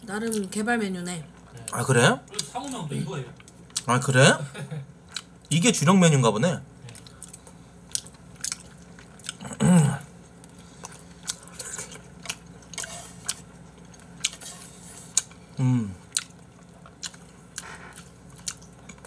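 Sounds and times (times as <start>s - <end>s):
chewing: 5.1s - 5.4s, 6.9s - 19.0s
person humming: 15.6s - 16.0s.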